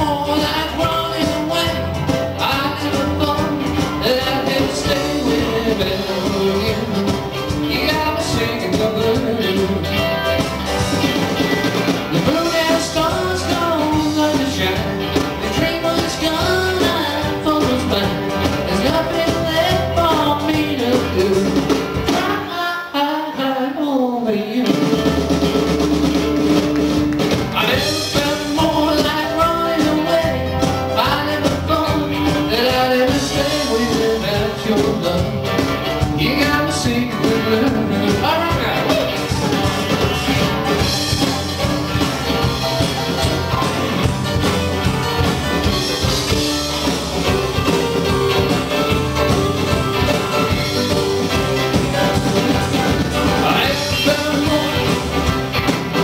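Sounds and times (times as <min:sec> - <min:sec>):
man singing: 0:00.0 - 0:11.1, 0:12.0 - 0:26.2, 0:27.3 - 0:43.7, 0:49.9 - 0:56.0
live rock band playing: 0:00.0 - 0:56.0.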